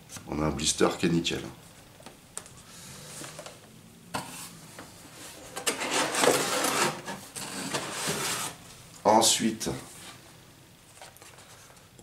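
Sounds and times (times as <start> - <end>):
packaging rustling and scraping: 4.2 - 8.7.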